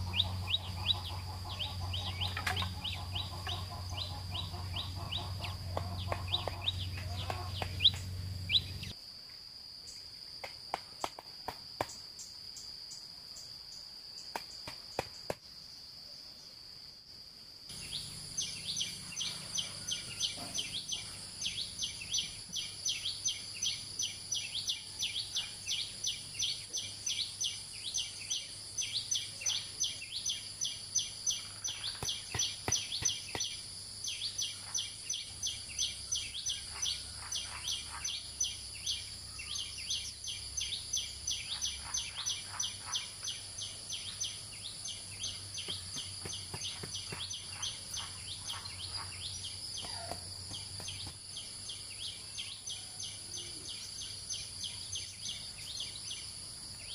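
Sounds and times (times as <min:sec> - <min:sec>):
high repeated chirping: 0:00.0 - 0:09.0.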